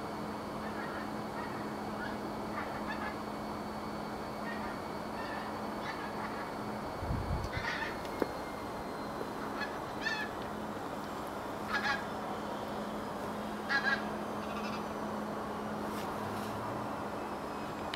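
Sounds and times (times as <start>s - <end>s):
geese honking: 0.6s - 3.2s, 4.4s - 6.5s, 7.5s - 8.0s, 9.4s - 10.5s, 11.6s - 12.2s, 13.6s - 15.0s.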